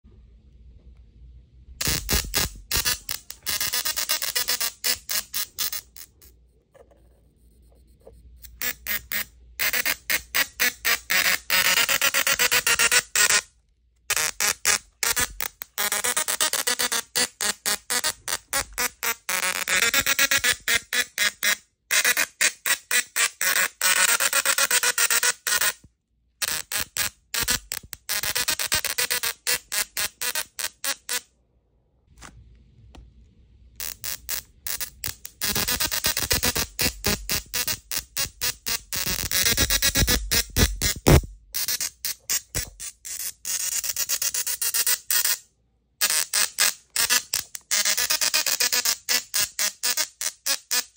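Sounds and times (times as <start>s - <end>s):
tesla coil arcs buzzing a tune: 1.8s - 6.3s, 8.4s - 13.5s, 14.1s - 31.3s, 33.8s - 45.4s, 46.0s - 50.9s
tesla coil buzzing melody: 33.8s - 43.0s.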